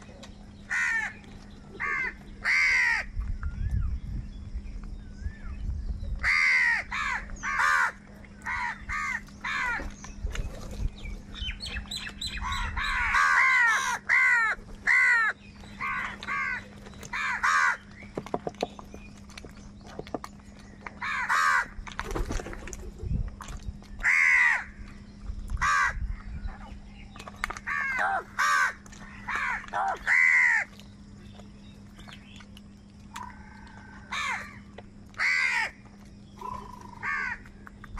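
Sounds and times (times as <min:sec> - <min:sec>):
crows cawing: 0:00.7 - 0:01.2, 0:01.8 - 0:03.1, 0:06.2 - 0:09.8, 0:12.4 - 0:17.8, 0:21.0 - 0:21.8, 0:24.0 - 0:24.8, 0:25.6 - 0:26.0, 0:27.7 - 0:30.7, 0:33.2 - 0:34.6, 0:35.2 - 0:35.8, 0:36.4 - 0:37.5.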